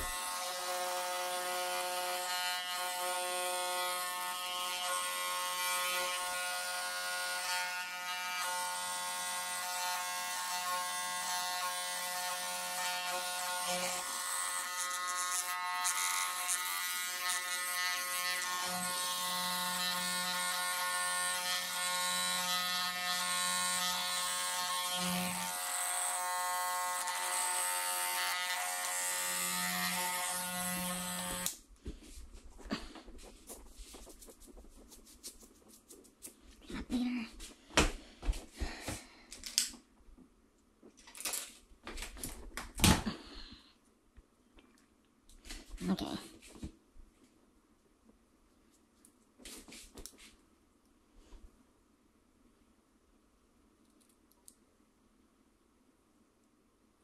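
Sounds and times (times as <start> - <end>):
electric hair clipper buzzing: 0.0 - 31.6.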